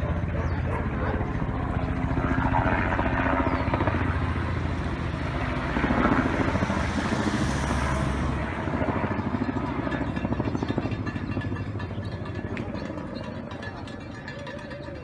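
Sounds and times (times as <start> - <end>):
car passing on wet street: 6.8 - 8.4.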